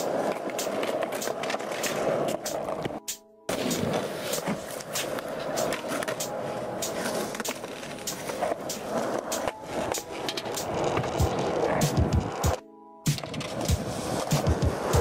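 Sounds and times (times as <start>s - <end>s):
skateboard clicks: 0.0s - 15.0s
skateboard wheels rolling on concrete: 0.0s - 15.0s.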